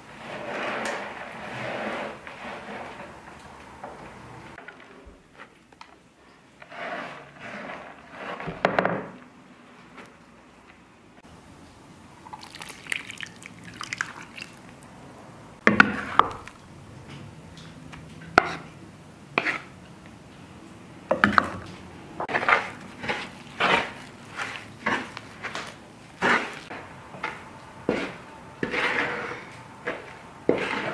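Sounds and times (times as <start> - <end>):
wooden spoon stirring dough: 0.0 - 10.6, 12.2 - 14.9, 15.6 - 17.3, 18.0 - 20.2, 21.2 - 30.9
liquid pouring and dripping: 12.2 - 15.0.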